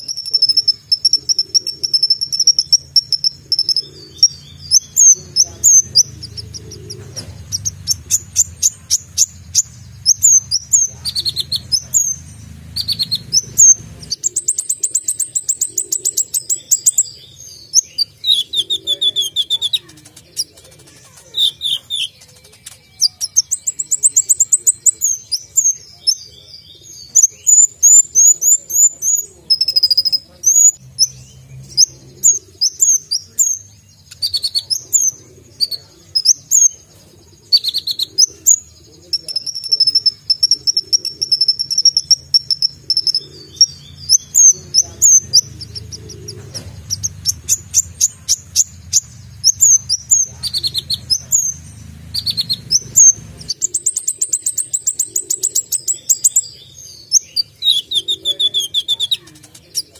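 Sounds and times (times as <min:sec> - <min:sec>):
sunbird singing: 0:00.0 - 0:59.9.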